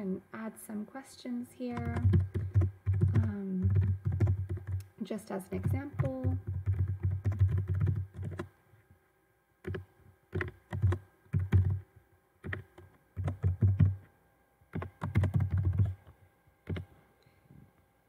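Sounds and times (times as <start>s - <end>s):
typing on keyboard: 1.7s - 4.9s, 5.6s - 8.5s, 9.6s - 11.8s, 12.4s - 14.0s, 14.7s - 16.9s.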